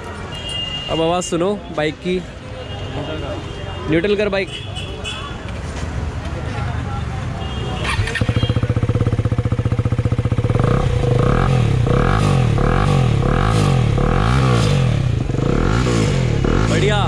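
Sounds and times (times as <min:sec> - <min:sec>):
motorcycle engine revving: 0:07.8 - 0:17.0
motorcycle engine idling: 0:07.9 - 0:13.5.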